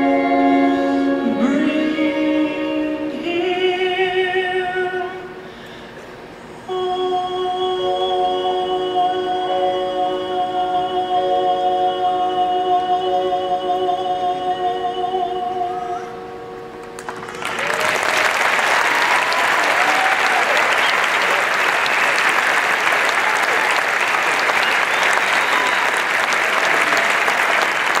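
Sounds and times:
audience applause: 0:16.9 - 0:28.0.

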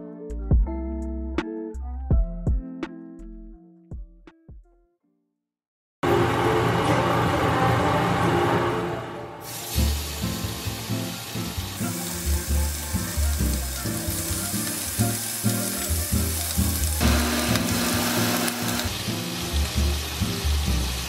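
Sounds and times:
lo-fi beat with bass: 0:00.3 - 0:04.8
bacon sizzling in a pan: 0:09.4 - 0:21.0.

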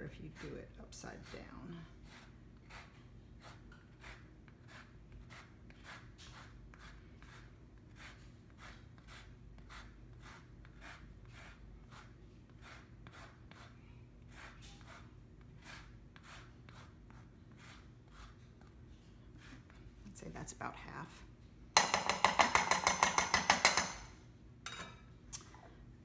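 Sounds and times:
grater scraping zest: 0:00.1 - 0:18.7.

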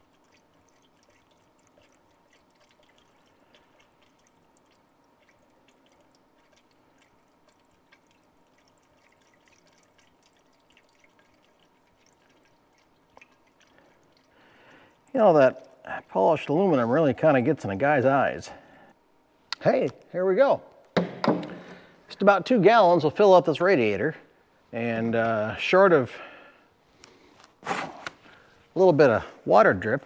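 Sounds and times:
dripping ticks: 0:00.0 - 0:17.4
liquid trickling: 0:00.0 - 0:18.2.

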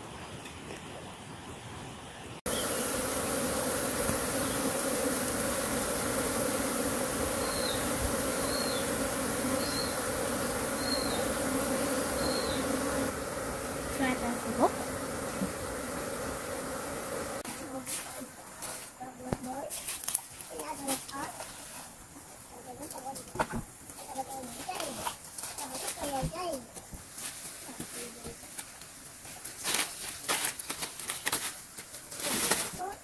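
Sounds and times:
insect buzzing: 0:02.5 - 0:17.8
high hiss: 0:02.5 - 0:19.4.

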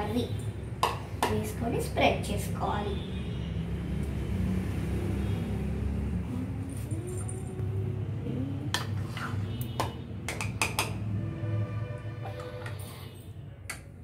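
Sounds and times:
plastic spoon scraping a plate: 0:08.8 - 0:09.5.

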